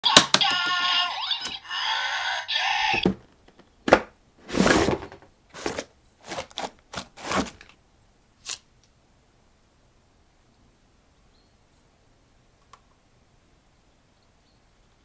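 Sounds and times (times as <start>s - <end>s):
cardboard scraping and rustling: 3.9s - 7.7s.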